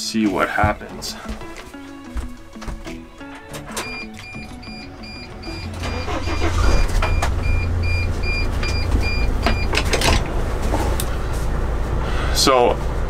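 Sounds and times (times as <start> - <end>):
van engine starting and running: 1.0 - 13.0
vehicle warning chime dinging: 3.7 - 9.9.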